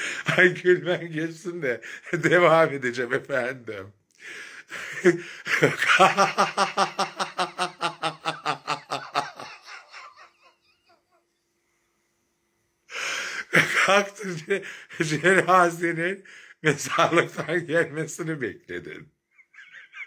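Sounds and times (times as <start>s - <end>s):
woman laughing: 5.5s - 11.1s, 19.4s - 20.0s.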